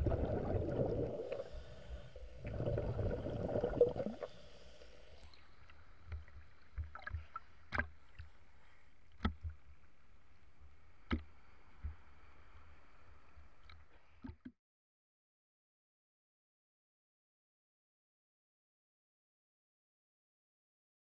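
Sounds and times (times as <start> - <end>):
muffled water rumble: 0.0 - 8.1.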